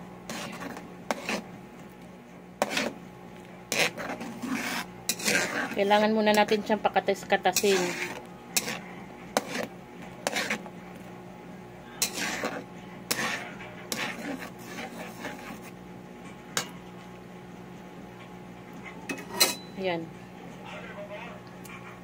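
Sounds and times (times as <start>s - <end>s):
steady low hum: 0.0s - 22.0s
spatula scraping a pan: 0.2s - 1.5s, 2.6s - 3.0s, 3.7s - 10.8s, 11.9s - 15.8s.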